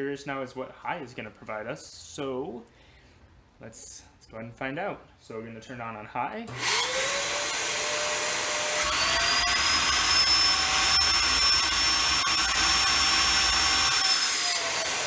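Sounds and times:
vacuum motor whining: 0:06.5 - 0:15.0.

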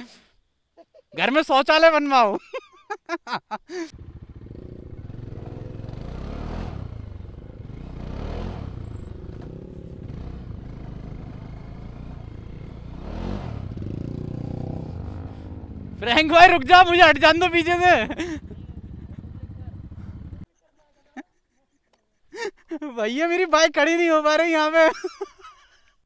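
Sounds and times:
motorcycle engine revving: 0:03.9 - 0:20.5.

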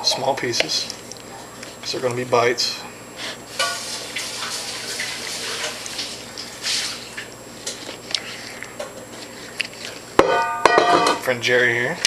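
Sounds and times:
water running from a tap: 0:03.5 - 0:07.2.

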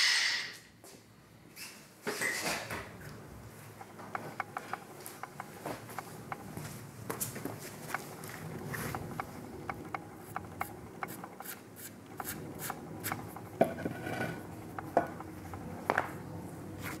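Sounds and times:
small clicks and taps: 0:03.8 - 0:06.6, 0:07.2 - 0:13.8, 0:14.4 - 0:16.1.

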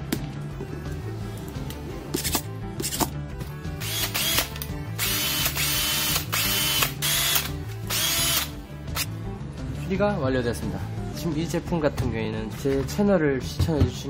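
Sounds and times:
cordless drill motor whining: 0:03.8 - 0:09.1
drill trigger clicks: 0:03.8 - 0:09.1.

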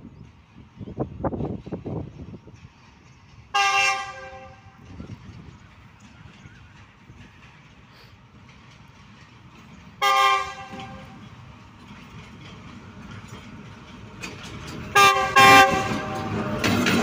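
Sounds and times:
rumble of oncoming train: 0:00.0 - 0:17.0
diesel locomotive horn blasts: 0:03.5 - 0:04.8, 0:10.0 - 0:11.2, 0:14.9 - 0:16.6.

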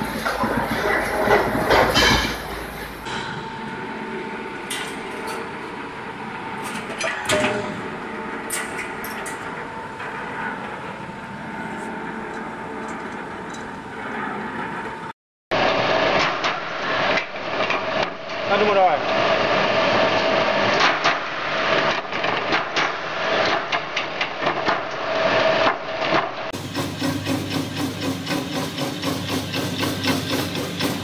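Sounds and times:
clattering workshop noise: 0:00.0 - 0:15.0, 0:15.6 - 0:31.0
bending machine humming: 0:00.0 - 0:16.0.

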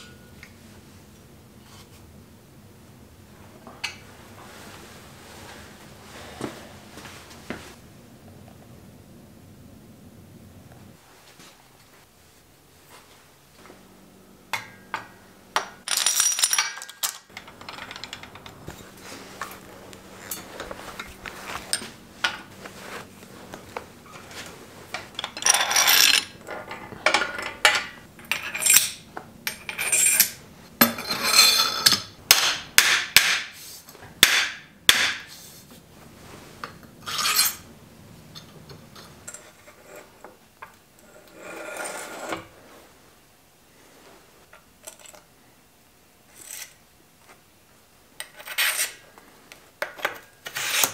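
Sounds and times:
metal tools clinking and scraping: 0:14.5 - 0:23.0, 0:24.1 - 0:32.2, 0:37.0 - 0:37.7, 0:38.3 - 0:40.2.

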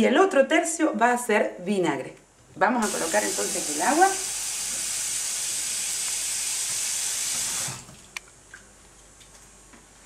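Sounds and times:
tap running water into saucepan: 0:02.8 - 0:07.9.

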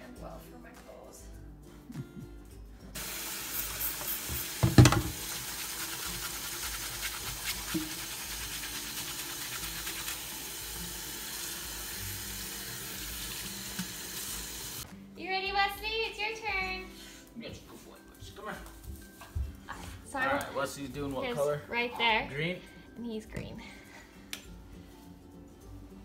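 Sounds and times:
clothing scrubbed in water: 0:03.5 - 0:10.4
tap running into steel sink: 0:03.8 - 0:05.3, 0:07.7 - 0:08.0, 0:13.7 - 0:14.0.

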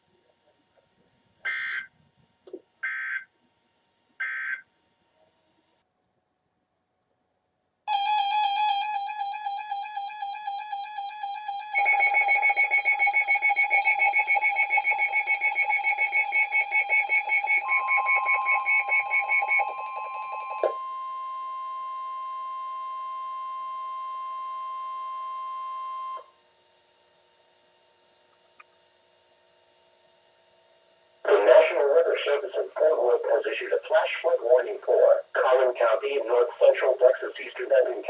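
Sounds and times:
faint hum: 0:00.0 - 0:38.0
steady alarm tone: 0:01.4 - 0:02.0, 0:02.8 - 0:03.3, 0:04.2 - 0:04.7, 0:07.9 - 0:26.3, 0:31.3 - 0:38.0
rapid pulsing electronic beeps: 0:01.5 - 0:01.9, 0:11.3 - 0:20.6.

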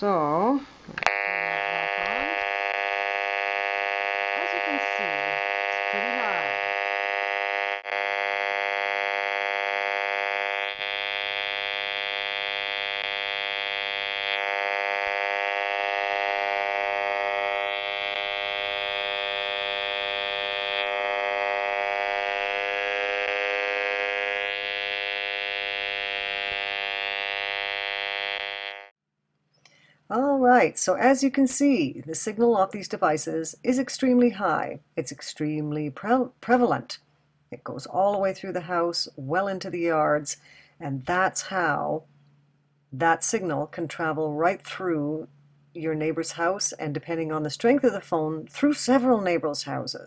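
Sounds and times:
meter speaker buzzing: 0:00.0 - 0:28.9.

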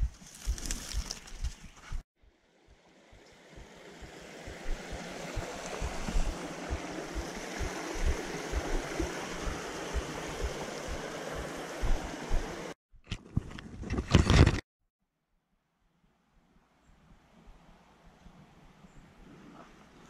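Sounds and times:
footsteps on rocky bank: 0:00.0 - 0:02.0, 0:04.5 - 0:12.4
creek rushing over rocks: 0:03.3 - 0:12.8.

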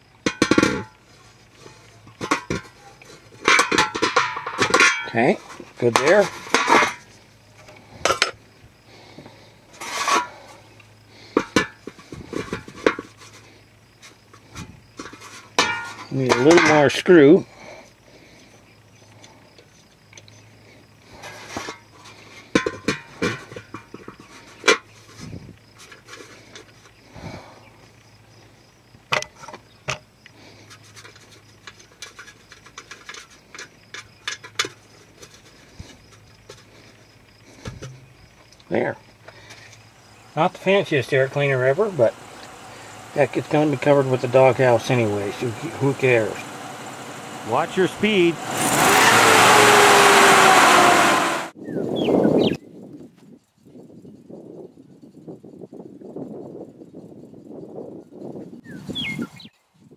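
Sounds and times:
metal hubcap clinking: 0:02.1 - 0:07.0, 0:15.1 - 0:17.1, 0:40.4 - 0:49.3
rustling scrape: 0:09.7 - 0:10.6.

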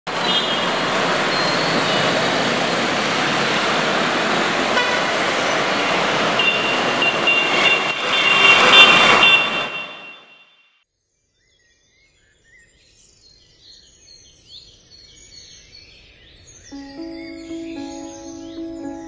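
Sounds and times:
city street traffic: 0:00.1 - 0:10.4
vehicle horns honking: 0:00.2 - 0:00.7, 0:04.8 - 0:05.2, 0:05.8 - 0:10.6.

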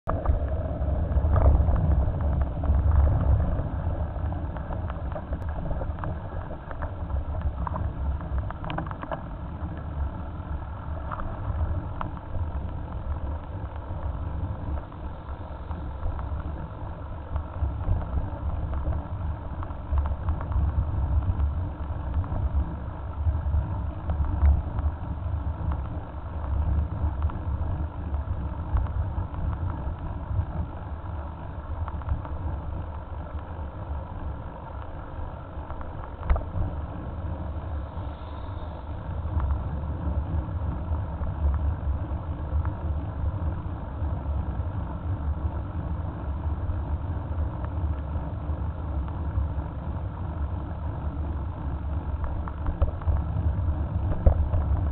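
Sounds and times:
wind buffeting microphone: 0:00.0 - 0:38.1, 0:38.7 - 0:54.9
tyre and road noise: 0:00.0 - 0:54.9
bicycle clicks and rattles: 0:00.1 - 0:54.9.

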